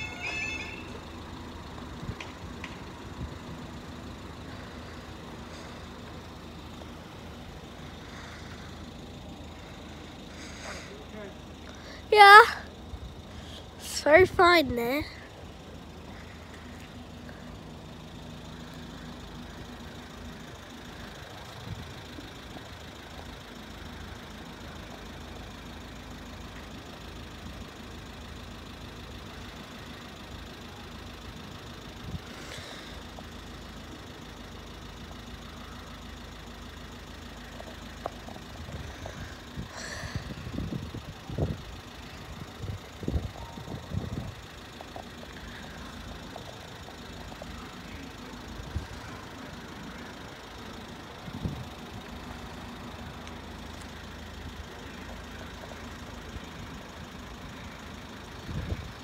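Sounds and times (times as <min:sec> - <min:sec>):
vehicles idling rumble: 0:00.0 - 0:59.0.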